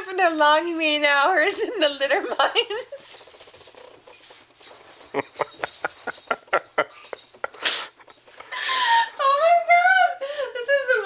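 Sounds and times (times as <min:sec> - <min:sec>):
woman laughing hard: 0:05.2 - 0:07.7.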